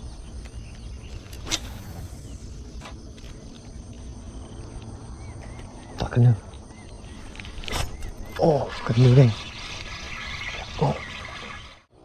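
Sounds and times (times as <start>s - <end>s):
bird chirps: 0.0s - 11.9s
sharp swish: 1.4s - 2.2s.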